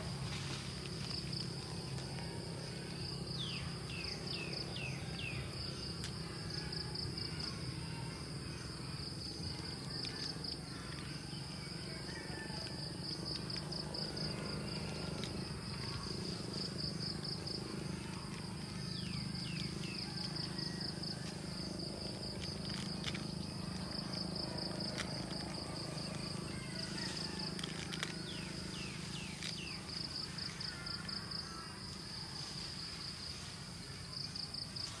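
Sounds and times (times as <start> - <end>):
insects trilling: 0.0 - 35.0
steady low hum: 0.0 - 35.0.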